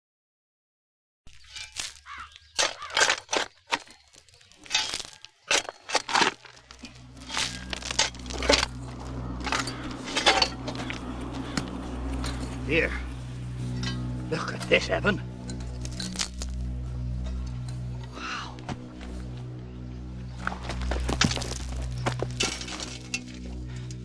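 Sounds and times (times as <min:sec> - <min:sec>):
spade digging into stony soil: 0:01.3 - 0:12.5, 0:15.5 - 0:16.6
low steady hum: 0:04.7 - 0:24.0.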